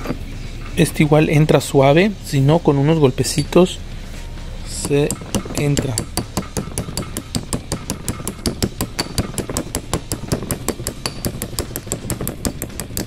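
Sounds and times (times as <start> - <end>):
rapid metal-on-metal taps: 4.8 - 13.0.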